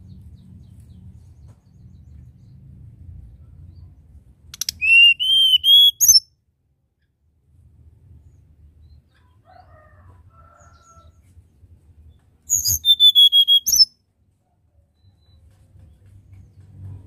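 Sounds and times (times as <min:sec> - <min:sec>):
bird singing whistled notes: 0:04.6 - 0:06.3, 0:12.5 - 0:14.0.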